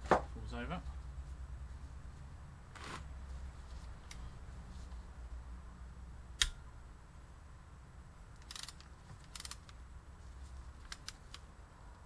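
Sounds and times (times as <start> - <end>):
hand ratchet clicking: 8.4 - 9.8
sharp metal click: 8.4 - 9.8.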